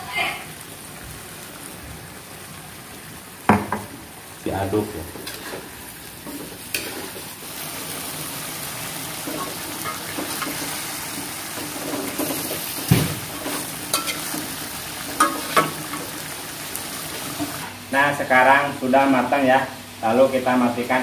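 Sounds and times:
food sizzling in a wok: 0:00.0 - 0:21.0
metal spatula scraping wok: 0:05.2 - 0:07.3, 0:11.6 - 0:14.5.

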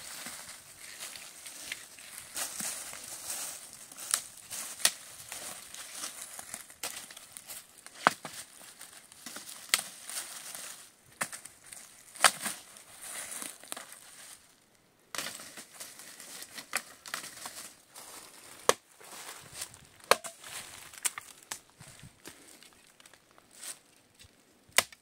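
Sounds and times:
dry leaves rustling and crunching: 0:00.0 - 0:23.8
dry sticks snapping: 0:00.8 - 0:10.4, 0:11.2 - 0:14.0, 0:15.1 - 0:17.7, 0:20.0 - 0:21.7, 0:24.2 - 0:25.0.

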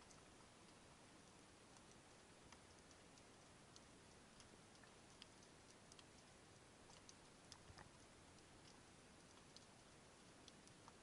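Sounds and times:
sharp underwater clicks: 0:00.0 - 0:11.0.

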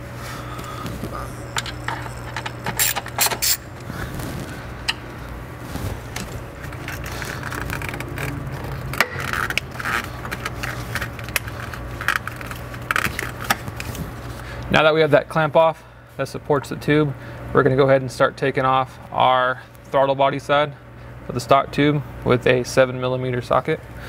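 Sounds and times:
steady low hum: 0:00.0 - 0:24.0
metal parts clicking and scraping: 0:01.5 - 0:03.6.

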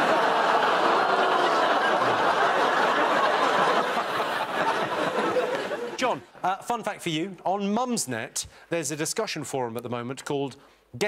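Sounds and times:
audience laughing: 0:00.0 - 0:06.3.

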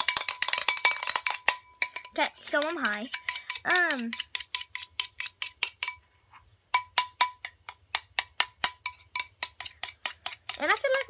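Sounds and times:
spoon clinking in glass bowl: 0:00.0 - 0:06.0.

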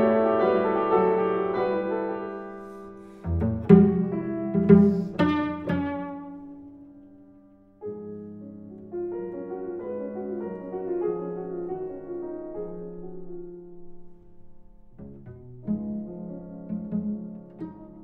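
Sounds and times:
piano playing: 0:00.0 - 0:18.0
bowed cello notes: 0:02.6 - 0:07.1, 0:13.9 - 0:18.0.

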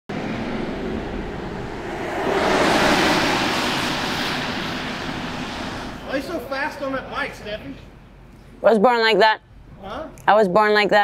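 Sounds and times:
tyres hissing on wet road: 0:01.8 - 0:07.5.

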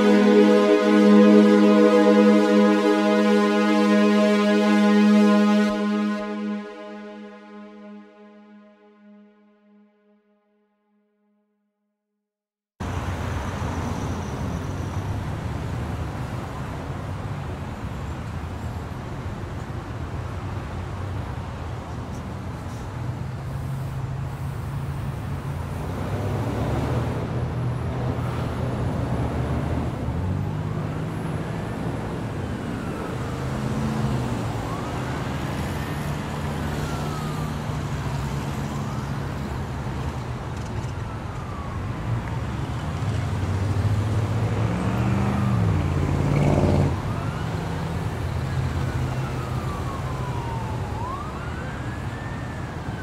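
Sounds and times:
emergency siren wailing: 0:00.0 - 0:10.2, 0:23.5 - 0:53.0
low engine and traffic rumble: 0:12.8 - 0:53.0.

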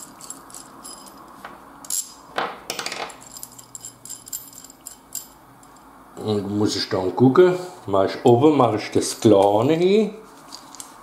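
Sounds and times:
metal hardware clinking: 0:00.0 - 0:05.9.

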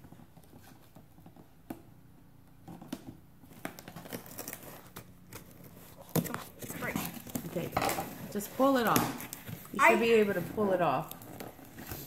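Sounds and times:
tape crinkling: 0:03.4 - 0:09.8
scissors snipping packing tape: 0:03.8 - 0:07.4.

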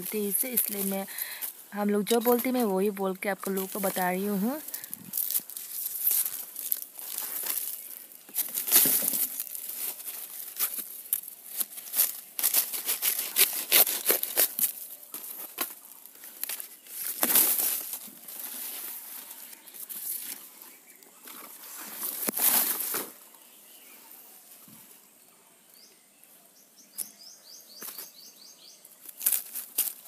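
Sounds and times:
dry leaves tearing: 0:00.0 - 0:20.5, 0:21.5 - 0:23.2, 0:29.0 - 0:30.0.

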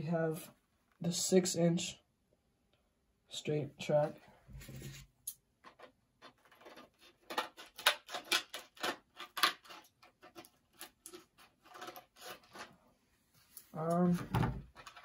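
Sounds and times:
plastic packaging clicking and crackling: 0:05.7 - 0:12.7, 0:14.7 - 0:15.0.

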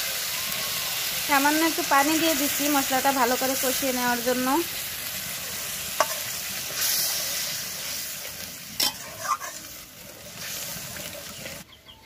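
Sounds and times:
paste sizzling in hot oil: 0:00.0 - 0:11.6
spatula scraping metal pan: 0:06.0 - 0:07.9, 0:08.8 - 0:11.6.

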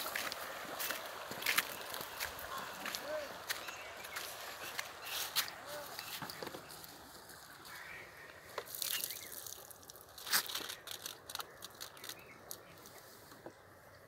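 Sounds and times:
plastic bottle crackling: 0:08.6 - 0:12.9.

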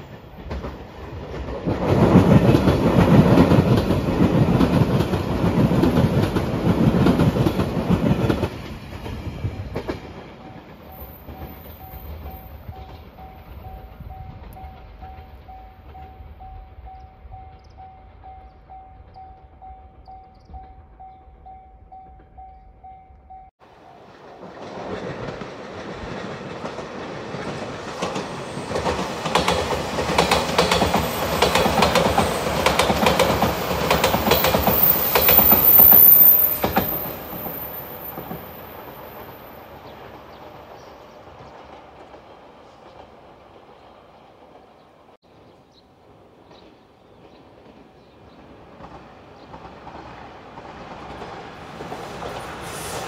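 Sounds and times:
distant train approaching: 0:00.0 - 0:53.0
electric train passing: 0:00.0 - 0:53.0
train wheels clacking over rail joints: 0:24.4 - 0:39.3.

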